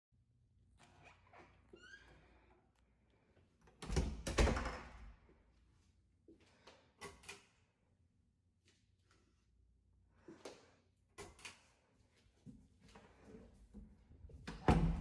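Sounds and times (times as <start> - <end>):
wooden closet door thumps and knocks: 14.5 - 15.0.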